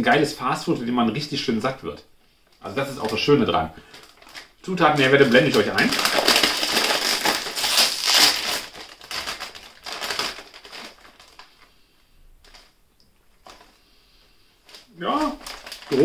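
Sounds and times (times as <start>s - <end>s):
plastic chip bag crinkling: 2.6s - 16.0s.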